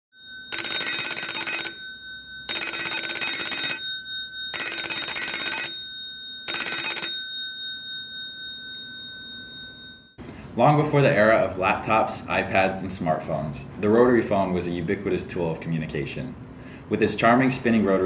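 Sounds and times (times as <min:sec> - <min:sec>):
telephone bells ringing: 0:00.1 - 0:10.2.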